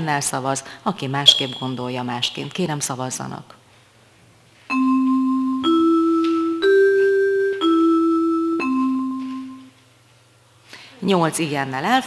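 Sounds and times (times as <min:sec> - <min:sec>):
bell-like electronic chime: 0:01.3 - 0:02.0, 0:04.7 - 0:09.7.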